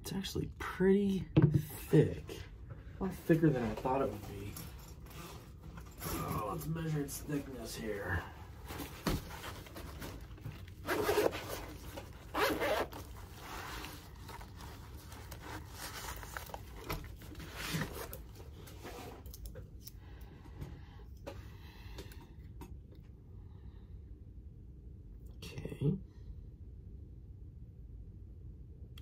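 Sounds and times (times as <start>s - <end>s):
faint clicks and handling: 8.7s - 20.0s
zip pulled open: 10.8s - 14.5s.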